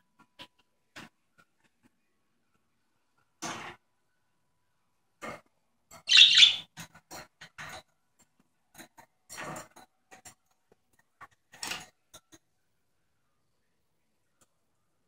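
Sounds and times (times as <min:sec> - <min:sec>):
budgerigar chirping: 0:06.1 - 0:06.7.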